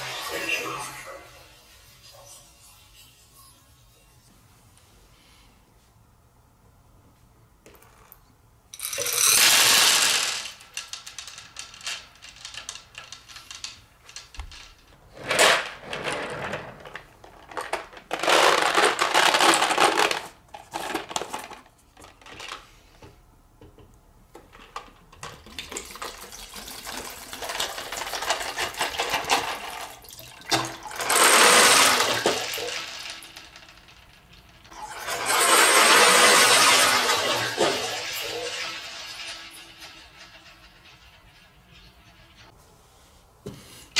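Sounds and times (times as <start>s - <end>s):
clicks and clatter: 8.8s - 22.6s
plastic balls rattling in water: 8.8s - 22.6s, 24.5s - 42.5s.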